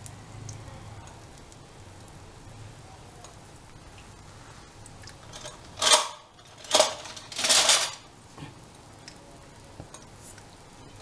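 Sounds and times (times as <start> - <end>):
utensils scraping metal pans: 5.3 - 8.0.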